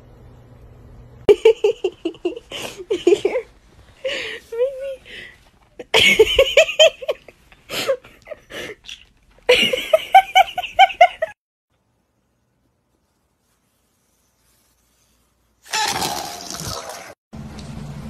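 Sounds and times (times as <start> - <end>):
person giggling: 1.3 - 5.0, 9.5 - 11.4.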